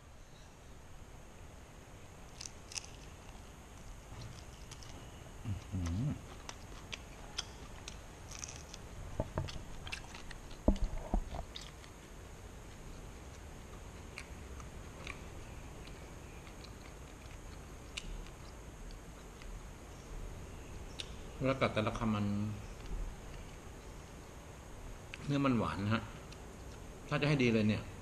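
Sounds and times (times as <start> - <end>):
man chewing crunchy prawn: 4.1 - 19.5.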